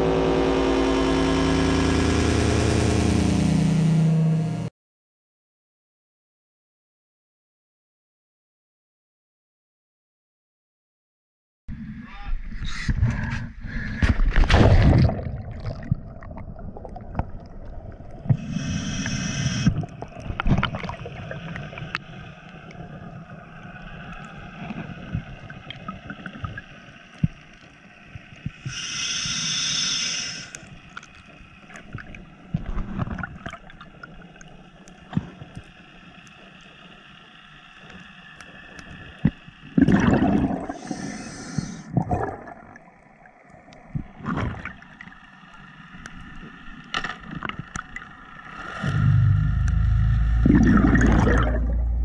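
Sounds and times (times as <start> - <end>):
underwater hum and clicks: 12.6 - 52.0
regulator exhaled bubbles rushing: 13.0 - 21.9, 39.7 - 41.2, 41.8 - 42.8, 48.6 - 52.0
loud splash into water: 14.2 - 15.9.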